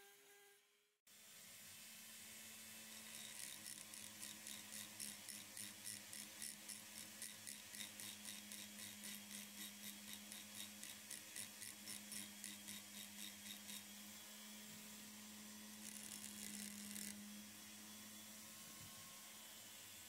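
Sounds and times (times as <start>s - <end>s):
rotary tool grinding whine: 2.2s - 20.0s
grinding hiss: 2.7s - 13.9s.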